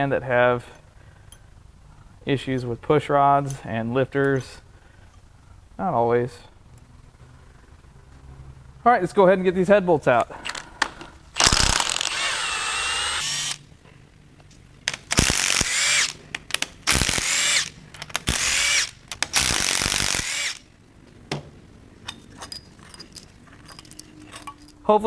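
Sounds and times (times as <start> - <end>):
impact wrench whirring: 11.4 - 13.7, 14.9 - 16.2, 16.8 - 20.7.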